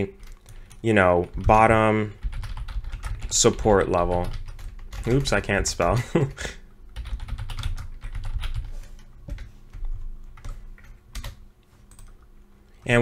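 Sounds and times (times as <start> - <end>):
typing on computer keyboard: 2.2 - 6.0, 6.9 - 12.3.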